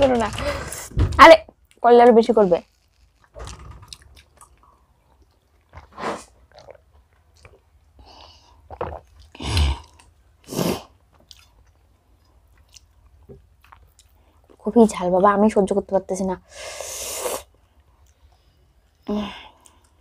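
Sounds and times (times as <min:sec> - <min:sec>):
people chewing food: 0:02.7 - 0:14.7, 0:16.9 - 0:20.0.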